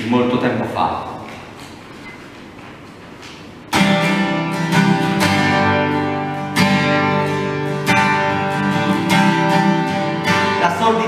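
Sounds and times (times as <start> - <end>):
acoustic guitar chords strummed: 3.6 - 11.0.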